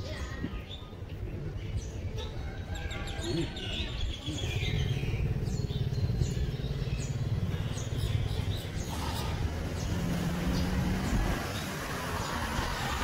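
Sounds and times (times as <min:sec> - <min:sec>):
small birds chirping: 0:00.0 - 0:13.0
low engine hum: 0:04.3 - 0:13.0.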